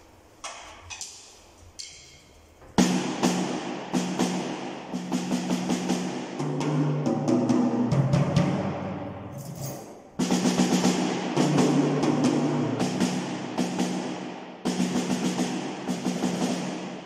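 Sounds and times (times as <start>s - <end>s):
drum fill on toms: 2.7s - 9.0s, 10.2s - 17.0s.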